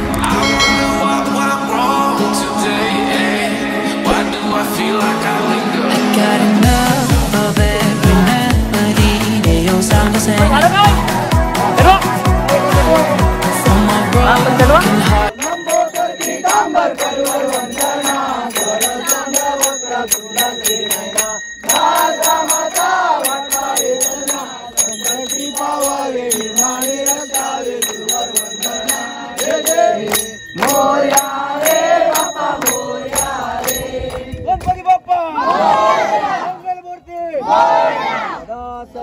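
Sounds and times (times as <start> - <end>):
group singing devotional song: 0.0 - 11.4, 12.2 - 34.5
hand claps: 9.9 - 10.5, 14.6 - 25.2, 26.4 - 35.0.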